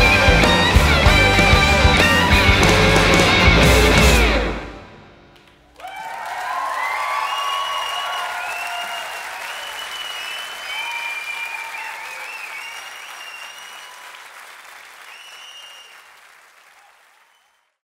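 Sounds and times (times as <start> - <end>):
audience applauding: 5.4 - 17.8
high whistles: 7.1 - 14.2, 15.0 - 16.1.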